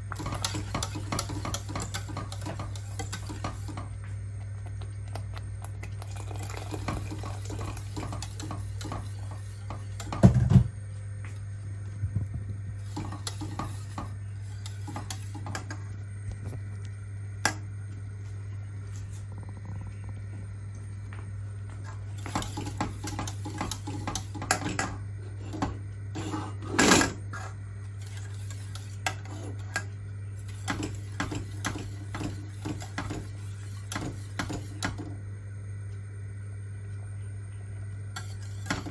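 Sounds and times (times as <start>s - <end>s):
steady low hum: 0.0s - 38.9s
whisk scraping against metal pot: 0.2s - 3.9s, 6.8s - 10.2s, 12.9s - 15.6s, 22.2s - 24.6s, 28.0s - 29.8s, 38.2s - 38.9s.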